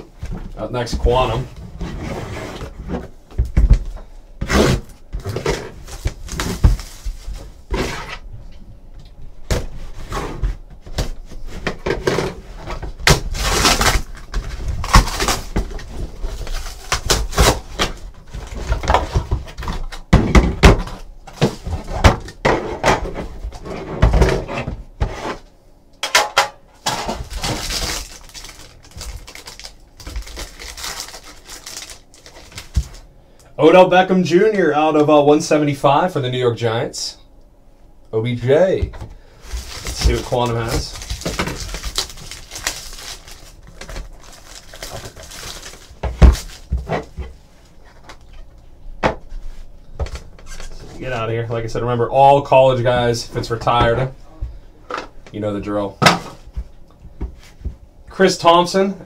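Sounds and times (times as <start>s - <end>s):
cardboard rustling and tearing: 4.4s - 8.2s, 9.9s - 20.0s, 27.0s - 33.0s, 39.4s - 47.2s
box cutter slitting shrink wrap: 13.0s - 14.2s, 14.8s - 15.6s, 16.4s - 18.0s.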